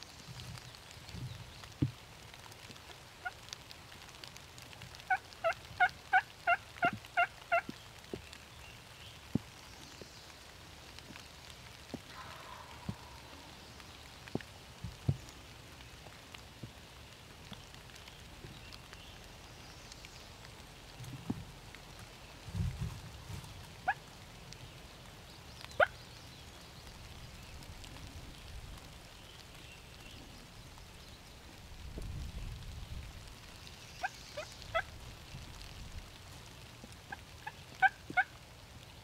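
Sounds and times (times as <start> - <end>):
turkey yelps: 5.1 - 7.7, 12.1 - 13.4, 37.1 - 38.3
light ticks: 17.4 - 22.2.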